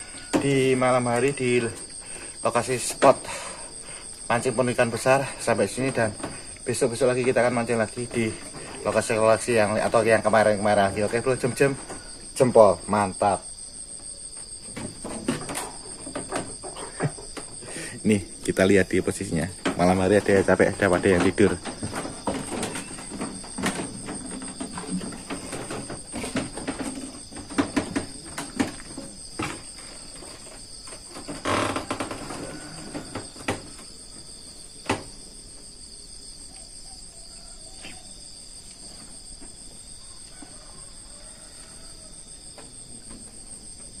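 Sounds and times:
crickets chirping: 0.0s - 44.0s
footsteps on wooden boards: 19.2s - 32.4s
knocks on wooden boards: 19.6s - 29.7s.

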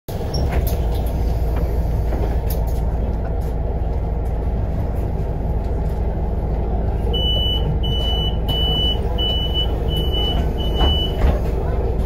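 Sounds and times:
bus idling rumble: 0.1s - 12.0s
high electronic door warning beep: 7.2s - 11.3s.

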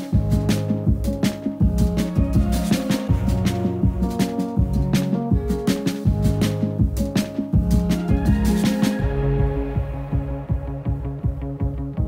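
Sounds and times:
drum hits: 0.0s - 12.0s
held chords: 0.0s - 12.0s
low bass line: 7.6s - 12.0s.

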